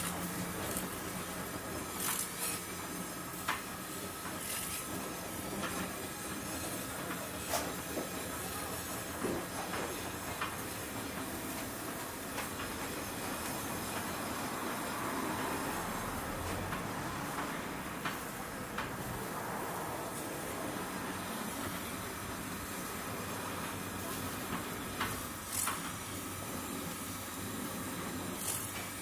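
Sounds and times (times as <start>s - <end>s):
mechanical rattle of turning spits: 0.0s - 6.0s, 24.8s - 27.2s, 27.8s - 29.0s
sharp clicks and crackles: 2.0s - 2.6s, 24.5s - 26.0s.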